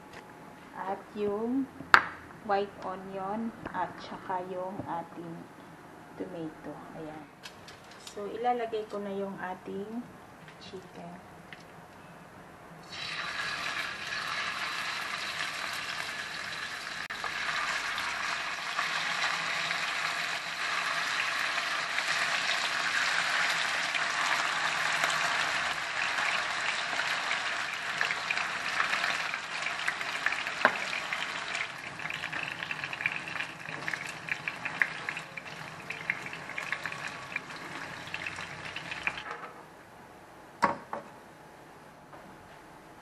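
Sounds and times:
chicken sizzling in oil: 0:12.8 - 0:39.2.

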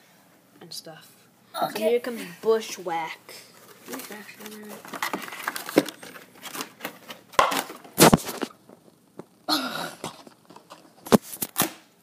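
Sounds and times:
toy packaging crackling: 0:03.7 - 0:08.5.

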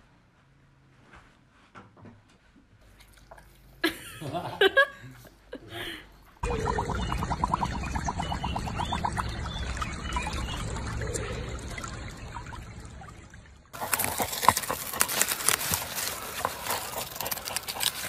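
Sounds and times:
water trickling and splashing: 0:06.4 - 0:18.0
dog digging in loose soil: 0:13.8 - 0:18.0.

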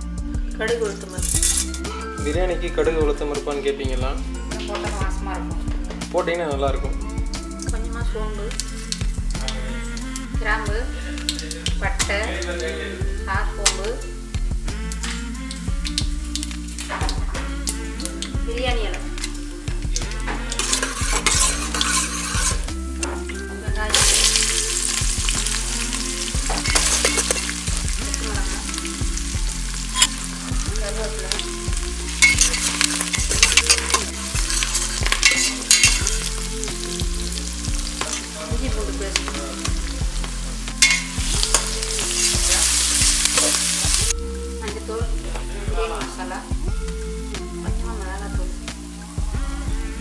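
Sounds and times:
spices sizzling in oil: 0:00.0 - 0:50.0
metal spoon scraping pot: 0:20.4 - 0:22.7, 0:26.5 - 0:27.6, 0:29.8 - 0:30.3, 0:32.1 - 0:36.4, 0:40.8 - 0:43.7.

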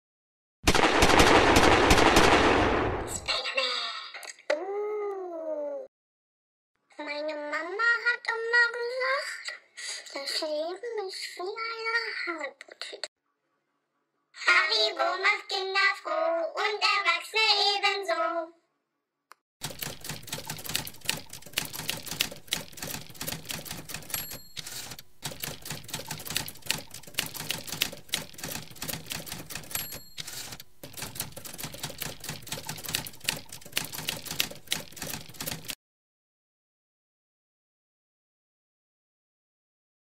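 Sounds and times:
typewriter bell ding: 0:19.6 - 0:35.8
typewriter keys clattering: 0:19.6 - 0:35.8.

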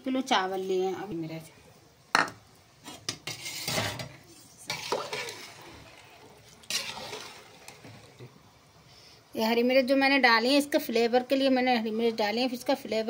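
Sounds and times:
spatula stirring rice in water: 0:02.8 - 0:08.4.

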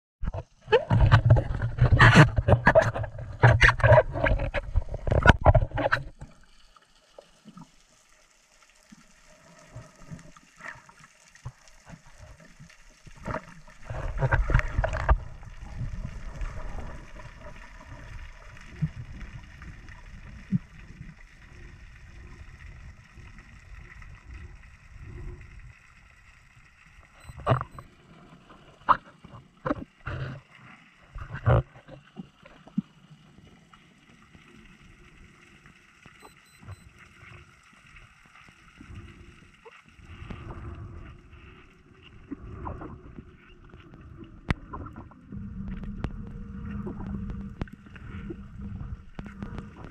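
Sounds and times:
muffled underwater hush: 0:00.2 - 0:06.2, 0:27.1 - 0:30.5
water splashing and sloshing: 0:00.2 - 0:49.9
soft low rumbles: 0:38.8 - 0:49.9.

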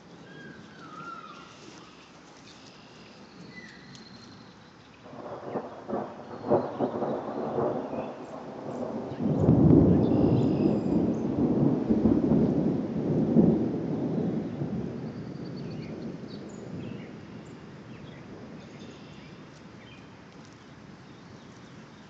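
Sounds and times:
distant thunder rumbling: 0:05.0 - 0:19.8.

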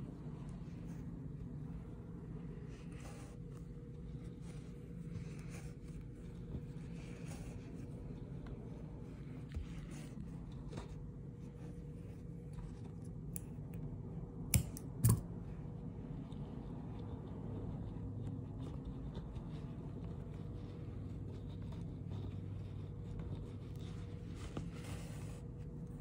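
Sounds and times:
low steady hum: 0:00.0 - 0:26.0
needle and yarn ticks and rustles: 0:00.1 - 0:26.0
scissors snipping yarn: 0:14.5 - 0:15.4.

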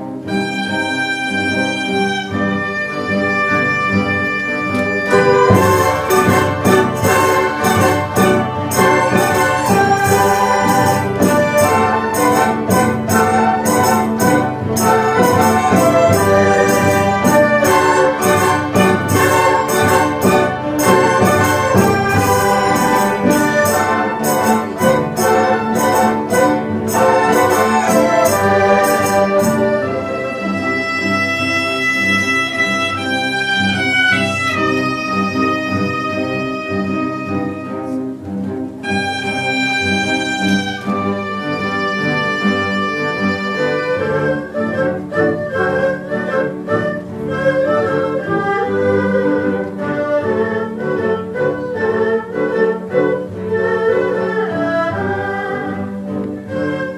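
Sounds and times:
traditional orchestra playing: 0:00.0 - 0:56.9
erhu section bowing: 0:00.3 - 0:38.2.

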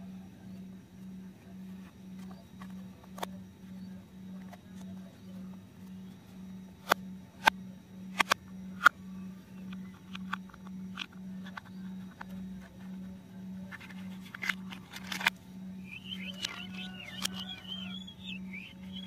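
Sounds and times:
low pulsing hum: 0:00.0 - 0:19.0
plastic toy parts clicking: 0:09.7 - 0:12.3, 0:13.7 - 0:15.3, 0:16.2 - 0:17.8.

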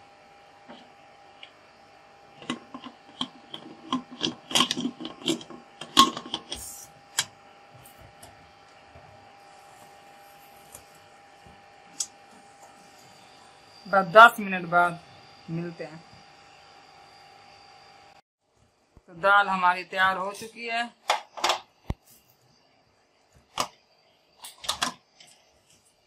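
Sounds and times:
metal lid clattering and scraping: 0:02.4 - 0:06.6.

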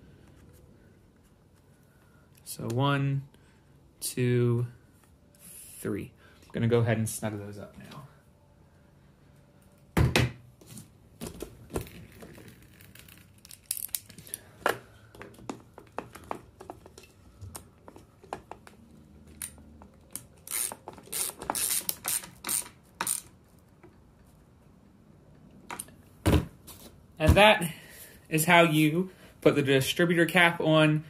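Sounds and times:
ratcheting socket driver clicking: 0:19.4 - 0:23.4.

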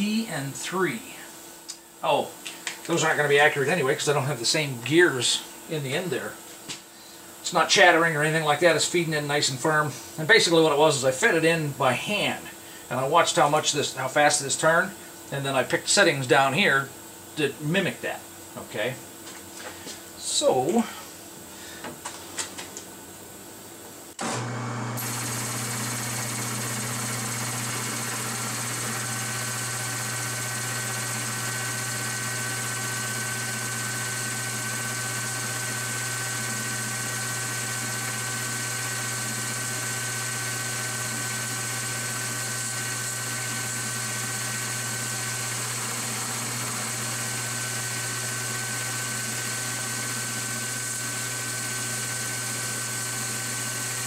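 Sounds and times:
metal lathe motor and gear hum: 0:24.2 - 0:54.0.

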